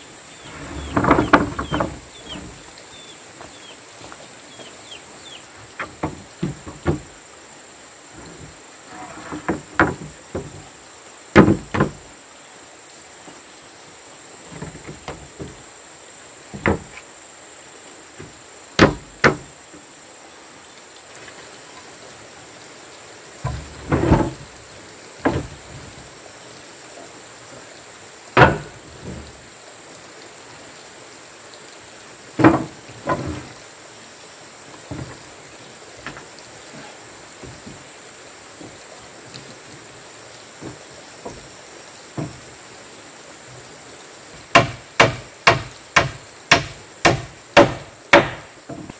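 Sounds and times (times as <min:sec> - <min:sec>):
wooden planks knocking: 0:00.4 - 0:02.6, 0:05.6 - 0:07.2, 0:08.2 - 0:10.7, 0:11.4 - 0:12.0, 0:14.5 - 0:15.6, 0:16.5 - 0:17.0, 0:18.2 - 0:19.5, 0:23.4 - 0:24.5, 0:25.2 - 0:25.8, 0:28.4 - 0:29.3, 0:32.4 - 0:33.6, 0:34.7 - 0:35.2, 0:36.0 - 0:37.8, 0:40.6 - 0:41.5, 0:42.2 - 0:42.4, 0:44.5 - 0:48.9.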